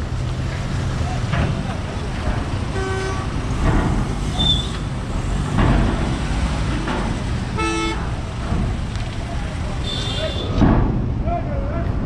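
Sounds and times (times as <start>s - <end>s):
car and van engines running: 0.0s - 12.0s
car horn toot: 2.7s - 3.3s, 7.6s - 8.1s, 9.8s - 10.6s.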